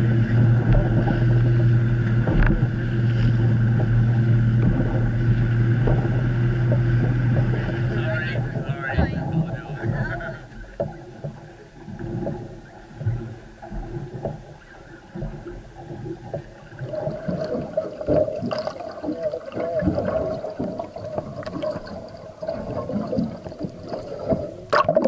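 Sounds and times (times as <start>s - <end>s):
wind on a boat deck: 0.0s - 18.6s
steady underwater hum: 0.0s - 25.0s
underwater gurgling and crackling: 0.0s - 25.0s.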